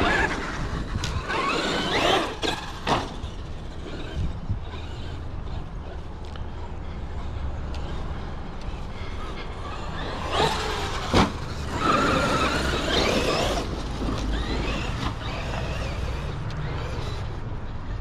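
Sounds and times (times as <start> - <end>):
electric motor whining: 0.0 - 17.4.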